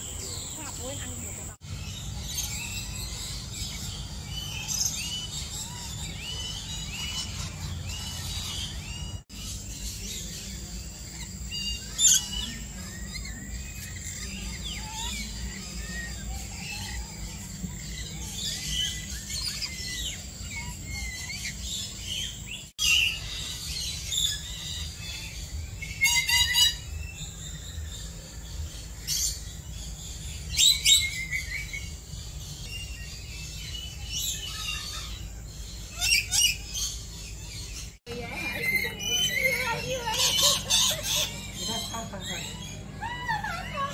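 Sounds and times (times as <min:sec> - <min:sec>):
parrots chattering: 0:00.0 - 0:27.5, 0:28.8 - 0:43.9
steady low hum: 0:26.7 - 0:43.9.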